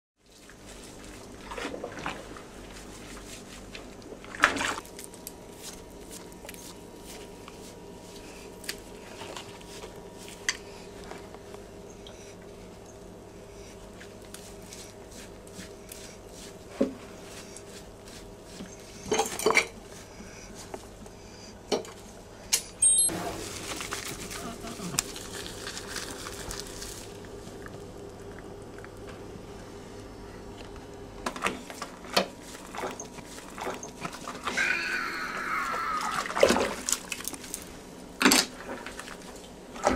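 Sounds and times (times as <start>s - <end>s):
steady hum: 0.2s - 39.9s.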